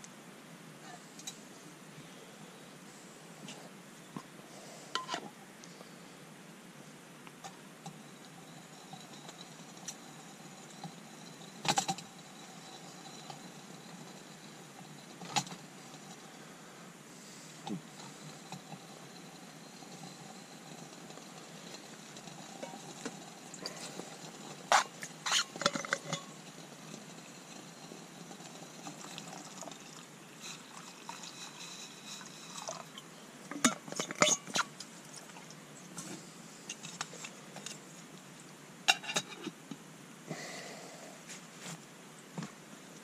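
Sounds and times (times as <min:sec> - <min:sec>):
water pouring into pot: 0:25.2 - 0:33.0.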